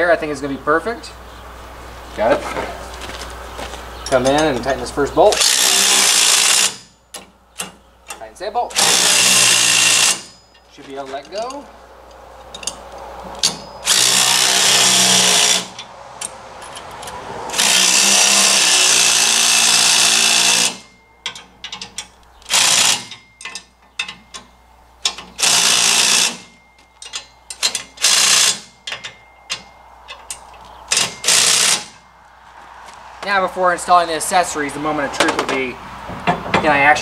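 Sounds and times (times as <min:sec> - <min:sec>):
impact driver running nuts: 0:05.3 - 0:06.9, 0:08.7 - 0:10.4, 0:13.4 - 0:15.8, 0:17.5 - 0:20.9, 0:22.4 - 0:23.2, 0:25.0 - 0:26.6, 0:27.6 - 0:28.8, 0:30.9 - 0:32.0.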